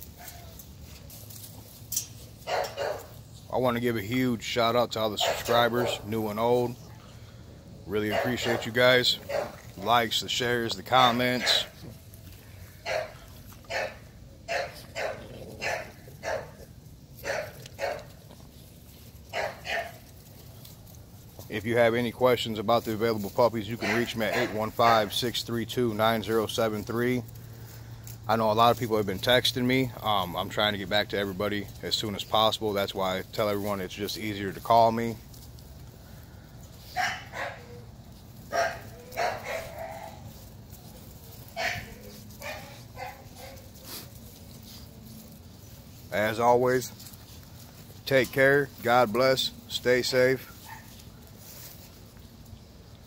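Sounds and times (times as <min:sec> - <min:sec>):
puppies barking and yipping: 0:00.0 - 0:03.4, 0:05.0 - 0:07.3, 0:07.9 - 0:21.4, 0:23.2 - 0:25.2, 0:34.7 - 0:49.2, 0:49.8 - 0:53.0
puppy barking: 0:02.5 - 0:03.1, 0:05.2 - 0:06.1, 0:08.1 - 0:09.6, 0:11.4 - 0:11.7, 0:12.8 - 0:16.6, 0:17.2 - 0:18.1, 0:19.3 - 0:20.0, 0:23.8 - 0:24.6, 0:36.9 - 0:37.8, 0:38.5 - 0:40.2, 0:41.6 - 0:43.6, 0:50.6 - 0:51.0.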